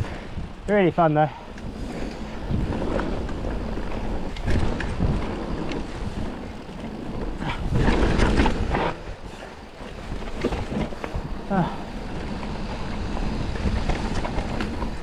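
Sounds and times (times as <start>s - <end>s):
bike rattling over bumps: 0.0s - 15.0s
bike tyres rolling over dirt: 0.0s - 15.0s
wind on microphone: 0.0s - 15.0s.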